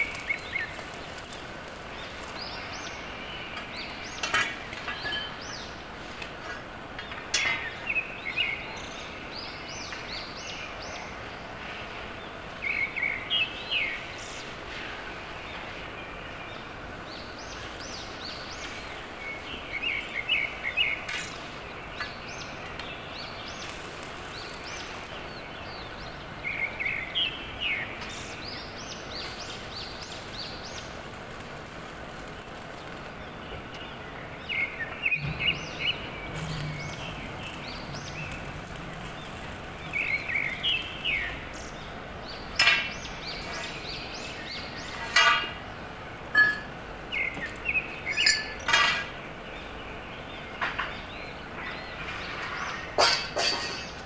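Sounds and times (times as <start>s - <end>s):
welding arc crackle: 0.0s - 3.0s, 17.4s - 19.8s, 22.7s - 26.0s, 29.0s - 33.8s, 35.2s - 41.8s
small birds chirping: 0.0s - 54.0s.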